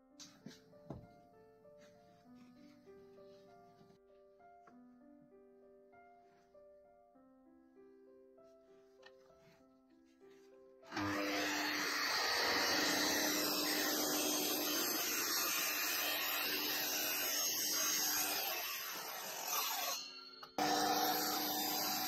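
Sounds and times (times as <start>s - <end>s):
mitre saw motor whining: 10.9s - 22.0s.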